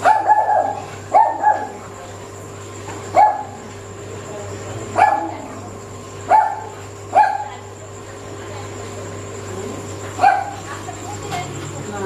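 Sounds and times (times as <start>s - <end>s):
dog barking: 0.0s - 1.8s, 3.1s - 3.6s, 5.0s - 5.4s, 6.3s - 7.6s, 10.2s - 10.6s.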